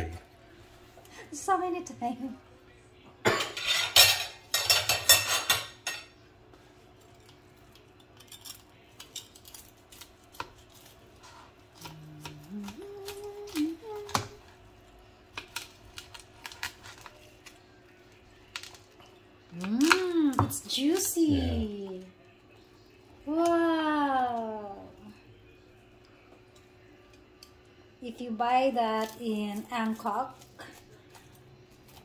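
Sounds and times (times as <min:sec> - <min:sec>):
knife and fork scraping a plate: 0:03.4 - 0:06.1.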